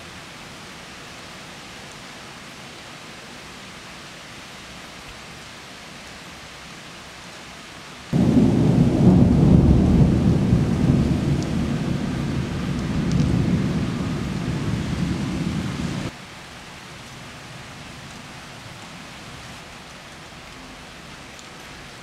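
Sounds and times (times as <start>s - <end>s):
steady rain: 0.0s - 22.0s
thunder rolling: 8.2s - 16.1s.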